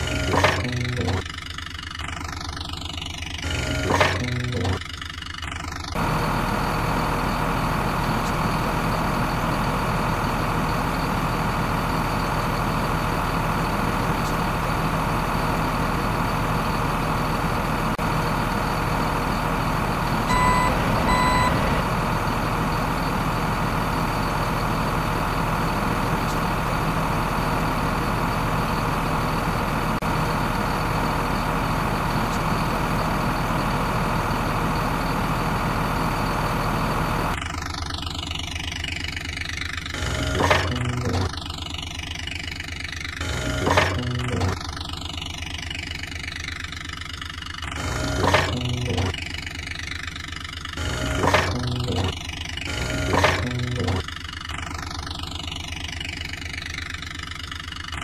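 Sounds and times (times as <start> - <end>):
truck engine running: 0.0 - 58.0
short high beeps: 20.3 - 21.6.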